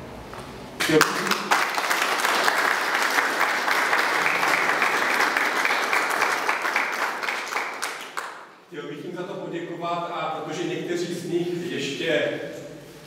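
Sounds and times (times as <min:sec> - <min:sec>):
audience applauding: 0:00.8 - 0:08.5.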